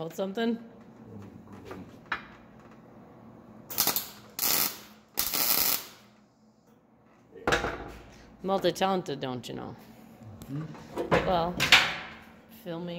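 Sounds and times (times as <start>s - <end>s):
crackling welding arc bursts: 3.7s - 6.1s.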